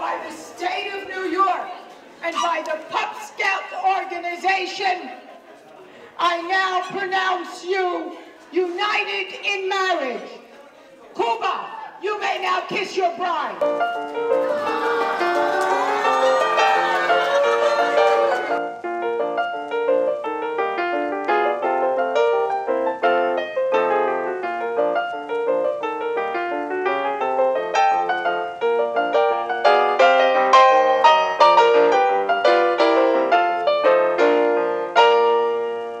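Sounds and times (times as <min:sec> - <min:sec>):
lively piano music: 0:13.6 - 0:36.0
crowd voices: 0:14.3 - 0:18.6.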